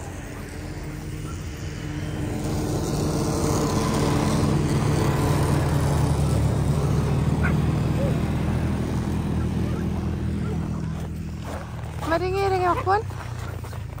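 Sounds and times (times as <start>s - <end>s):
vehicle engine droning: 0.0s - 14.0s.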